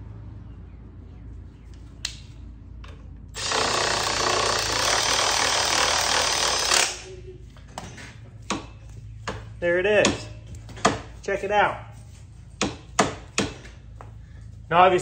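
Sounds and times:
cordless power tool running: 3.3 - 7.1.

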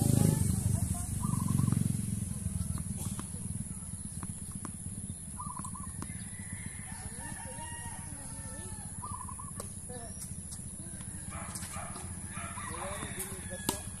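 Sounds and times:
low outdoor rumble: 0.0 - 14.0
rooster crowing: 5.9 - 9.3, 12.0 - 14.0
tennis racket hitting ball: 12.7 - 14.0.

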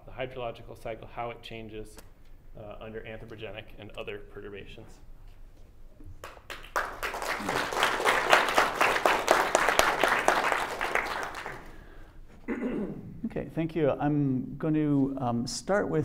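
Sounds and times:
audience applauding: 6.2 - 12.0.

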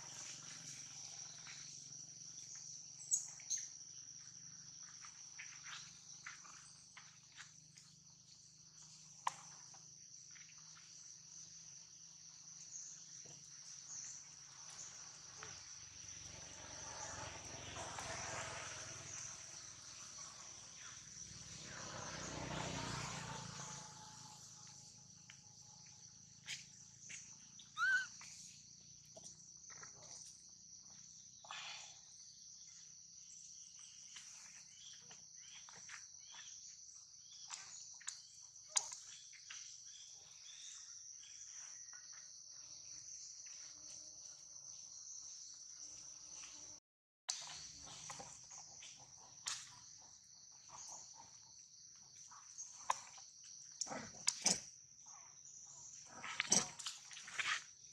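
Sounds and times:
insects droning: 0.0 - 57.9
sharp chirp: 27.6 - 28.2.

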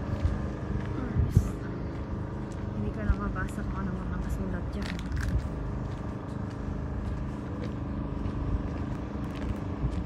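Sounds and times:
motor running: 0.0 - 10.0.

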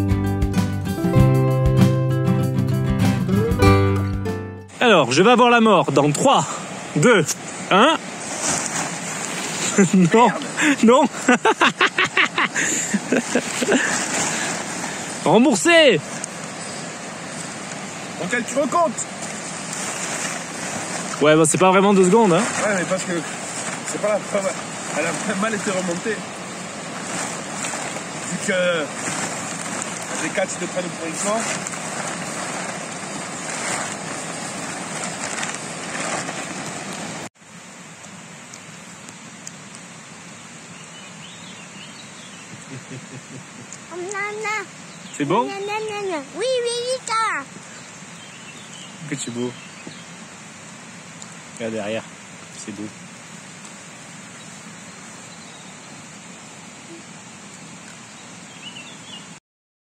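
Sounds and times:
tent fabric rustling: 4.7 - 37.4, 41.2 - 50.1
stream rushing: 4.7 - 59.4
faint bird chirps: 47.3 - 50.3, 56.8 - 59.4.

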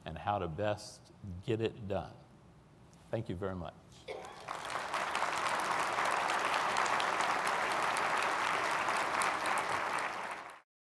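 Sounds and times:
audience applauding: 4.1 - 10.6.

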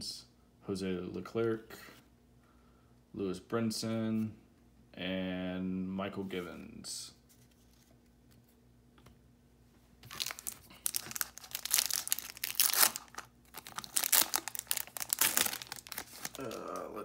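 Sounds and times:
foil wrapper tearing and crinkling: 10.0 - 16.9.

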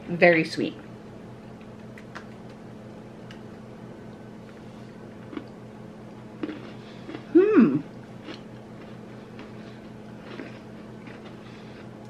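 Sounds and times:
people chewing cookies: 1.6 - 12.0
person humming mm: 7.3 - 7.9.

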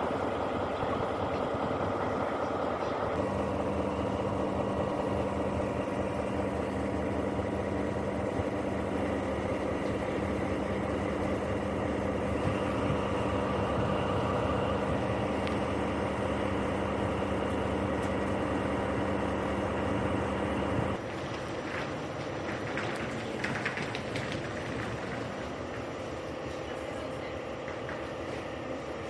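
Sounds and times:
diesel locomotive idling: 0.0 - 29.0.

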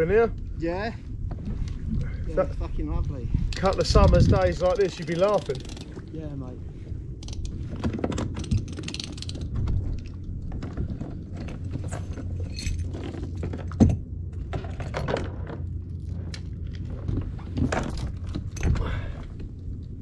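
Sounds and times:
steady low rumble: 0.0 - 20.0
gear clicking and rattling: 3.5 - 6.1, 7.2 - 13.9.

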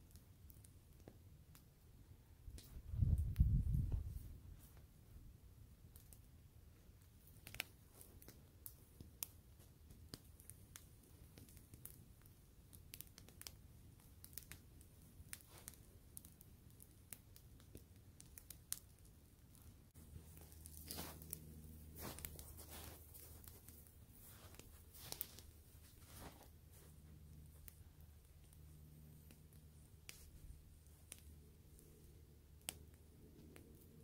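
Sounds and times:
soft steady rush: 1.8 - 34.0
campfire crackling and popping: 5.7 - 34.0.

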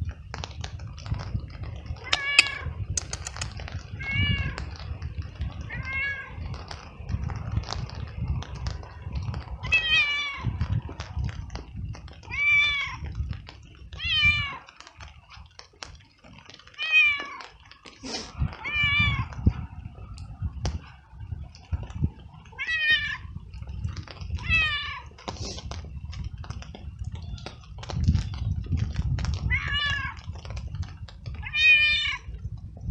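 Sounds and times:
cat meowing loudly: 2.0 - 2.7, 4.0 - 4.6, 5.7 - 6.4, 14.0 - 14.7, 16.7 - 17.4, 18.6 - 19.3, 24.4 - 25.2, 29.5 - 30.3, 31.4 - 32.3.

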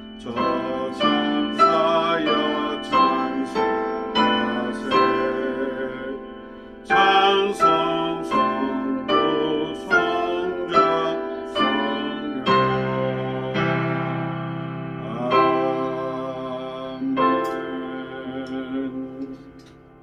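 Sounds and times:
man singing: 0.0 - 19.8
piano playing slow hymn chords: 0.0 - 20.0.

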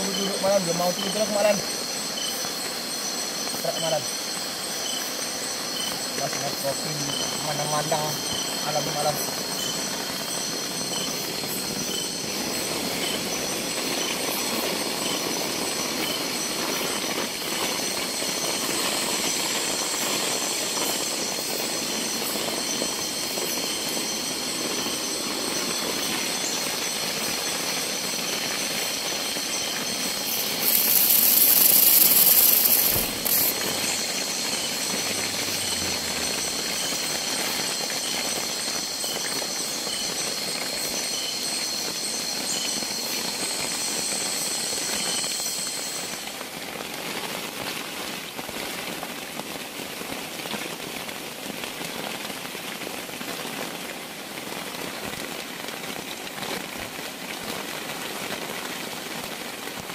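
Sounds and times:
loud high hiss: 0.0 - 47.6
heavy rain falling: 0.0 - 59.9.

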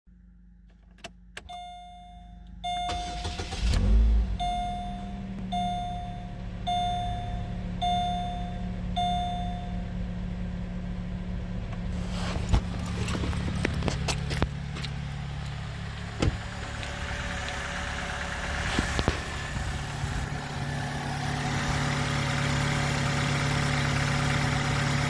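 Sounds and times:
car engine cranking and idling: 0.1 - 25.0
dashboard warning chime: 1.4 - 3.4, 4.3 - 9.9.

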